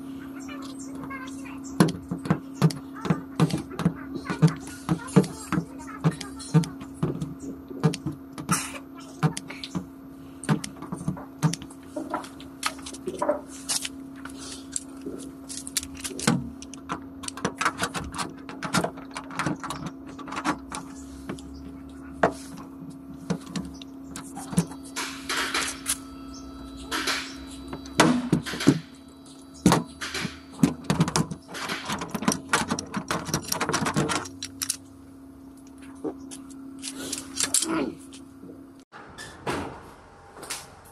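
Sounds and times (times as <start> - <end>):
steady hum: 0.0 - 40.9
steel hooks clattering on wire: 36.3 - 38.2.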